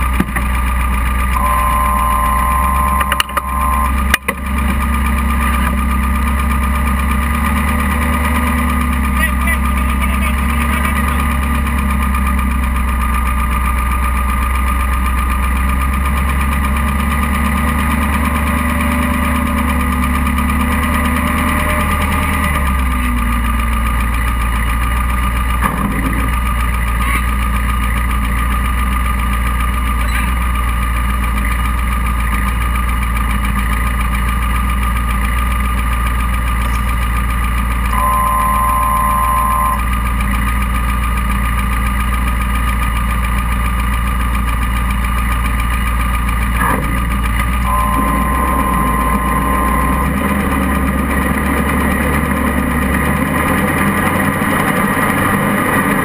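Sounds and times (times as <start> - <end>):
buggy engine idling: 0.0 - 56.0
steady high tone: 1.4 - 4.2, 37.9 - 40.0, 47.6 - 51.2.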